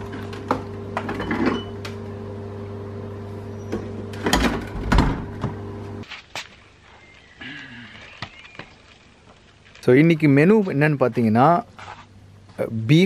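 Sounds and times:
refrigerator humming: 0:00.0 - 0:06.0.

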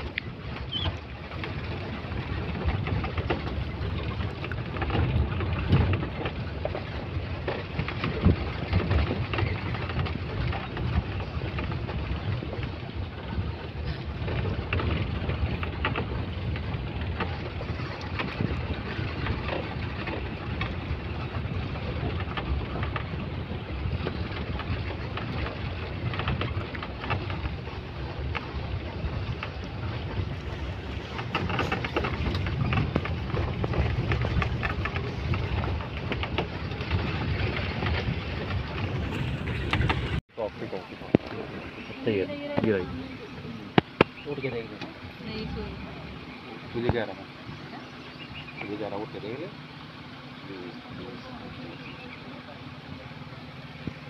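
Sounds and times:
wind rushing past microphone: 0:00.0 - 0:48.7
vehicle engine and tyre noise: 0:00.0 - 0:54.0
jolts and knocks from rough road: 0:00.2 - 0:40.2.

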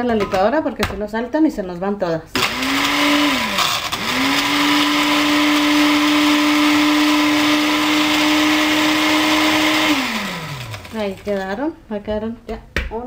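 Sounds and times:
blender grinding cookies: 0:02.4 - 0:11.5.

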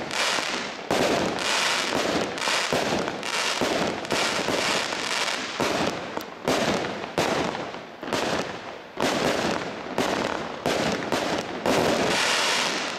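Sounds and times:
fireworks shots: 0:00.0 - 0:12.9.

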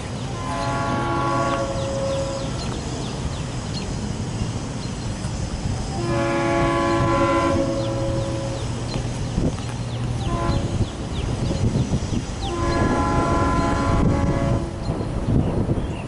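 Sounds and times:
train rumbling: 0:00.0 - 0:16.0
train air horn blast: 0:00.3 - 0:02.8, 0:05.9 - 0:08.9, 0:10.2 - 0:10.9, 0:12.4 - 0:14.9.

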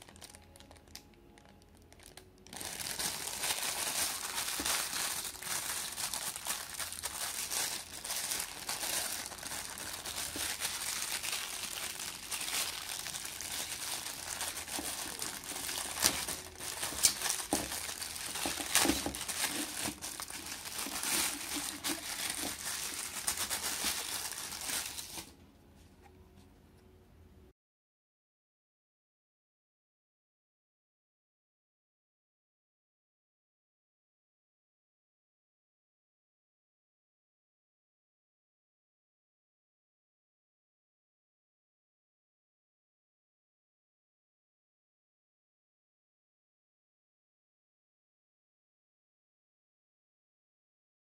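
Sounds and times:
plastic bag crinkling: 0:00.0 - 0:25.3.

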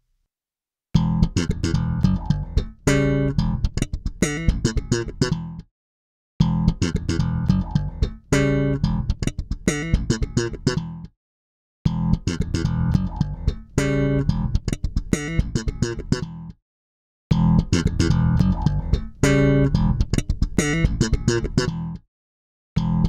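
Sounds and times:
electric bass phrase: 0:01.0 - 0:03.8, 0:06.4 - 0:09.2, 0:11.9 - 0:14.6, 0:17.3 - 0:22.0.

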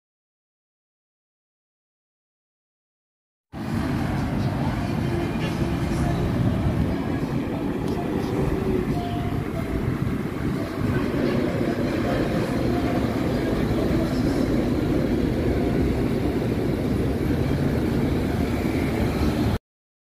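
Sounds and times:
heavy truck diesel engine: 0:03.6 - 0:19.6.

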